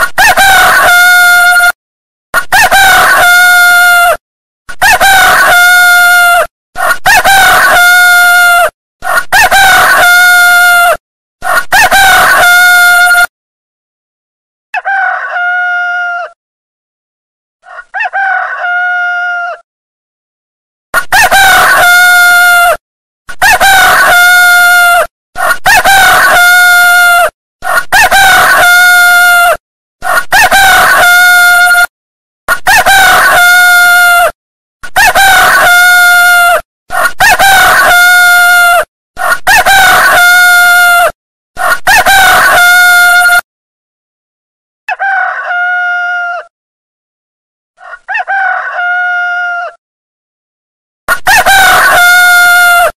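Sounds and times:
rooster crowing: 0:02.5 - 0:04.2, 0:14.8 - 0:16.4, 0:17.6 - 0:19.6, 0:21.0 - 0:22.8, 0:25.7 - 0:31.9, 0:32.7 - 0:34.3, 0:35.0 - 0:43.4, 0:44.9 - 0:46.5, 0:47.8 - 0:49.8, 0:51.2 - 0:52.9.

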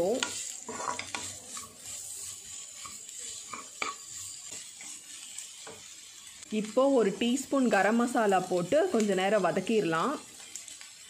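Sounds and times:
wooden spatula stirring and scraping: 0:00.0 - 0:06.4
potatoes and onions sizzling: 0:00.0 - 0:11.0.

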